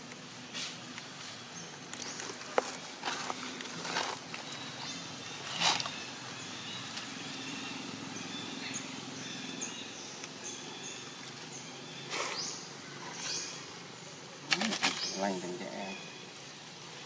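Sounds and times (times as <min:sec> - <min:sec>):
rustling: 0:00.5 - 0:06.0.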